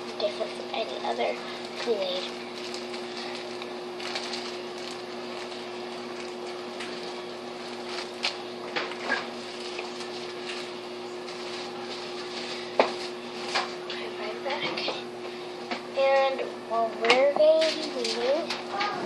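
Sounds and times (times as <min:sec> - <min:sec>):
kitchen appliance hum: 0:00.0 - 0:19.0
plastic packaging clicks and rustles: 0:01.7 - 0:12.1.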